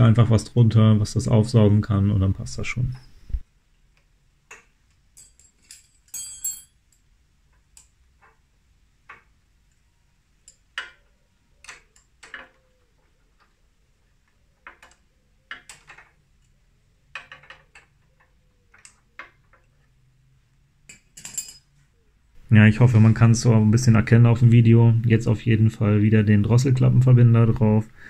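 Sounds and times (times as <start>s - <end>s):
pliers clinking on metal fittings: 5.1s - 7.0s, 20.9s - 21.7s.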